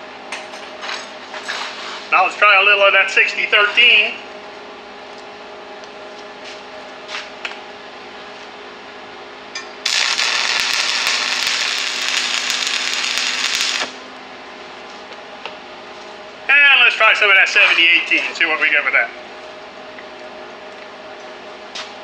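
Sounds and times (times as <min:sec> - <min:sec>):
steady hum: 0:00.0 - 0:22.0
welding arc crackling and hissing: 0:09.8 - 0:14.0.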